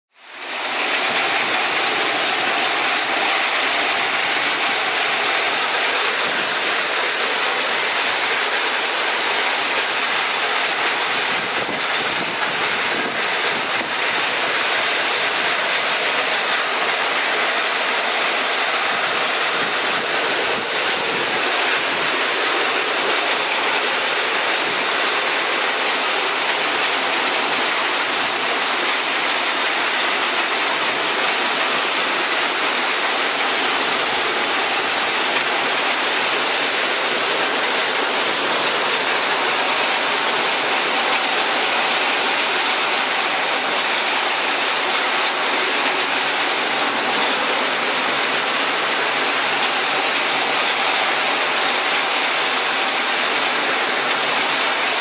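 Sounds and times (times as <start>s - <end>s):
heavy rain on pavement: 0.1s - 55.0s
strong wind: 11.0s - 25.3s.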